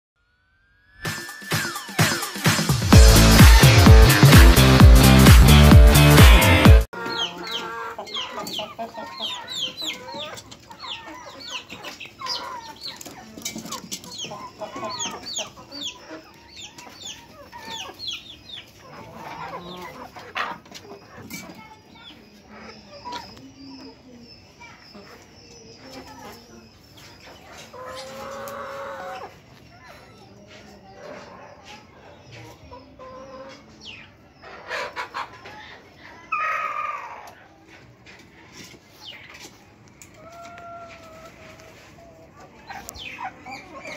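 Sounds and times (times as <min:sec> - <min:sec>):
chickens clucking and peeping: 0:01.2 - 0:43.9
chicken squawking: 0:05.9 - 0:13.1, 0:34.4 - 0:37.4, 0:40.2 - 0:43.9.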